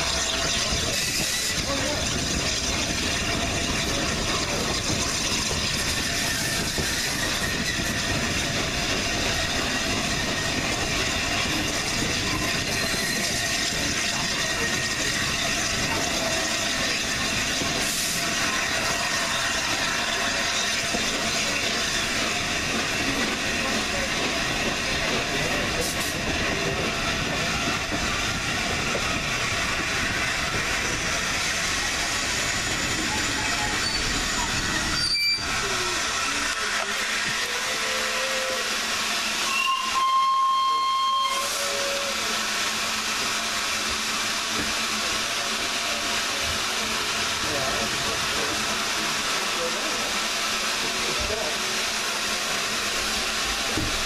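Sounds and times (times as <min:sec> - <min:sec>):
train carriage rattling on rails: 0:00.0 - 0:54.0
steam whistle: 0:39.4 - 0:42.2.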